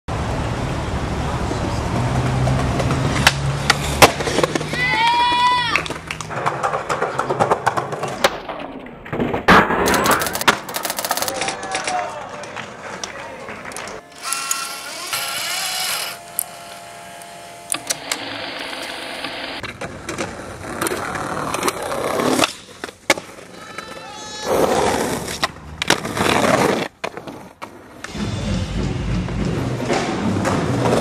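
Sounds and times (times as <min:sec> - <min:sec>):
skateboard wheels rolling on concrete: 0:00.1 - 0:14.3, 0:14.9 - 0:28.2, 0:29.2 - 0:31.0
skateboard clacks popping and landing: 0:02.5 - 0:12.0.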